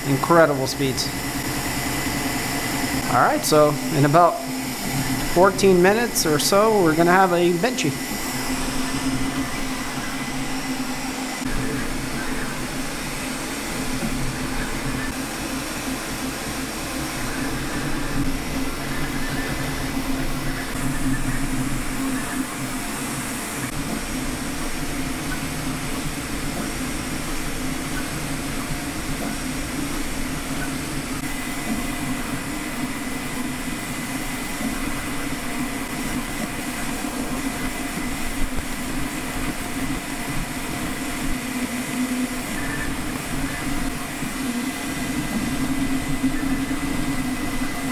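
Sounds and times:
low hum: 0.0s - 15.2s
cooling fans whirring: 0.0s - 47.9s.

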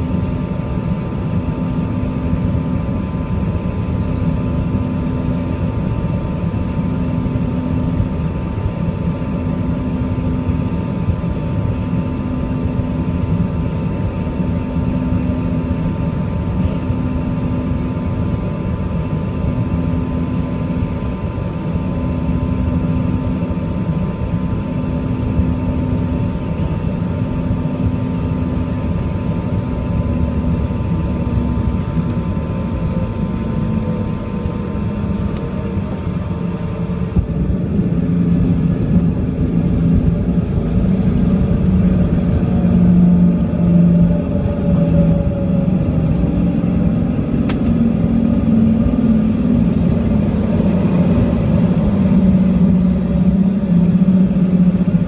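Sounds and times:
jet engines humming: 0.0s - 55.0s
low rumble of runway roll: 0.0s - 55.0s
steady whine: 0.0s - 55.0s.

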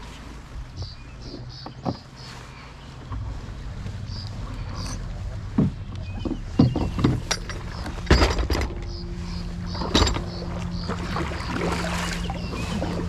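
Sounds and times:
low rumble: 2.2s - 13.0s
paddle splashes and knocks: 9.6s - 13.0s.

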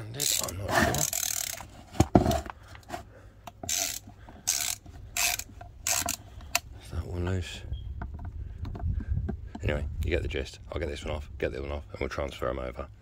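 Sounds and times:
ratchet driver clicking: 0.2s - 1.7s, 3.5s - 6.7s.

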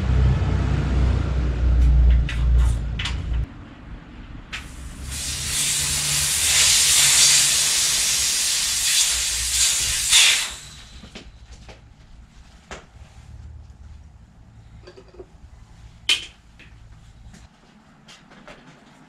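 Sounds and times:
air hissing out of inner tube: 4.6s - 11.3s.

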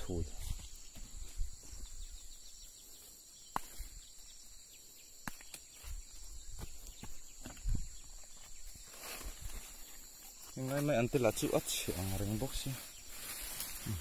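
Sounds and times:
insect chirring: 0.0s - 14.0s
vines and soil rustling: 5.2s - 14.0s.

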